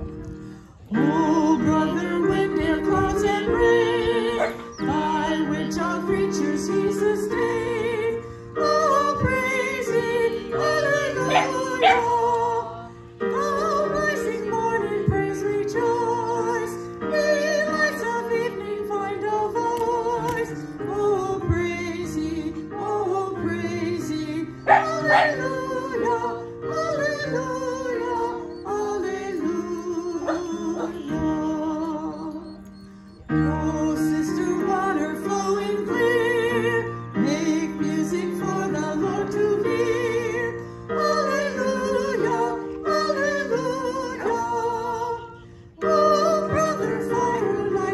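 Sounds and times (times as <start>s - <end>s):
electric keyboard chords: 0.0s - 47.9s
woman singing: 0.9s - 31.9s
dog barking: 4.4s - 4.6s, 11.2s - 12.2s, 24.7s - 25.5s, 30.2s - 31.0s.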